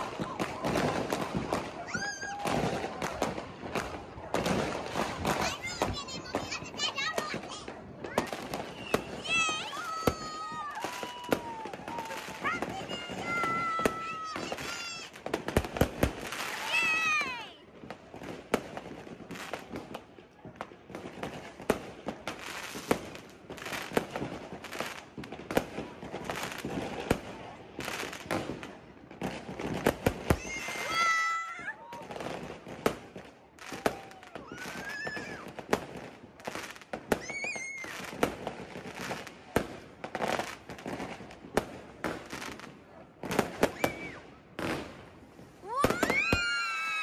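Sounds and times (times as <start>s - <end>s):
fireworks bangs and crackles: 0.0s - 47.0s
firework whistling: 8.1s - 15.1s, 33.7s - 35.6s, 37.1s - 38.4s, 43.5s - 44.3s, 45.6s - 47.0s.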